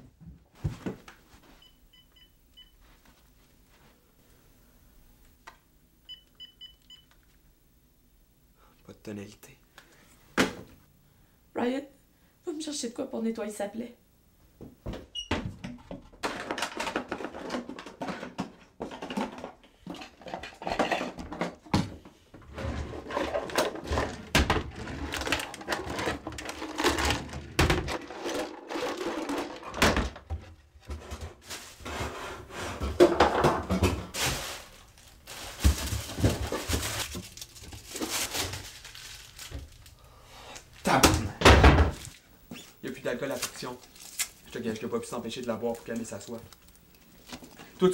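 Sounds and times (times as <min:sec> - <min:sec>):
cupboard doors opening and closing: 0:14.8 - 0:28.1, 0:28.9 - 0:34.2, 0:40.9 - 0:42.8
bottles and objects clattering: 0:15.6 - 0:22.0, 0:32.8 - 0:34.7.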